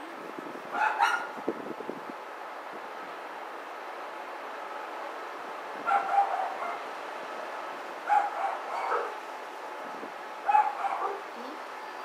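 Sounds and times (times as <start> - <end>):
steady hiss: 0.0 - 5.9
dog yapping: 0.8 - 1.3, 5.9 - 6.8, 8.1 - 9.2, 10.5 - 11.2.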